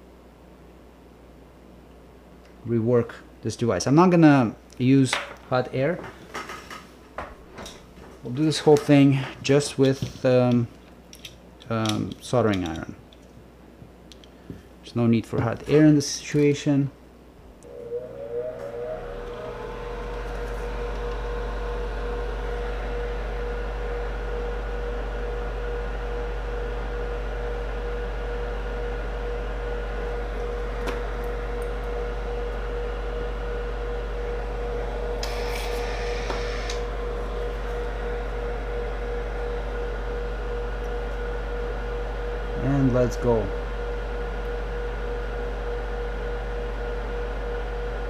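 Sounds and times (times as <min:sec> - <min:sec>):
electrical equipment hum: 0:00.0 - 0:48.0.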